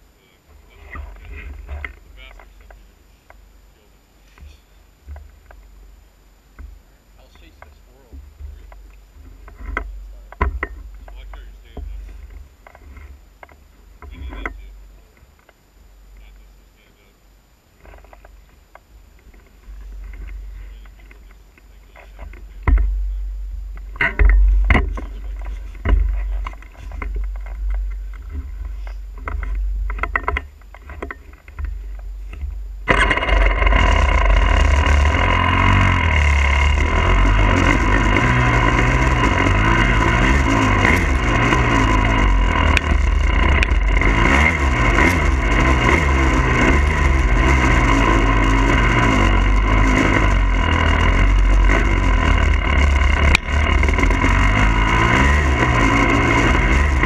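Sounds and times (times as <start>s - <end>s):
dirt bike engine revving: 0.0s - 6.0s, 6.6s - 15.1s, 19.1s - 57.0s
rumble: 0.0s - 57.0s
scattered knocks: 7.6s - 14.7s, 22.2s - 35.2s.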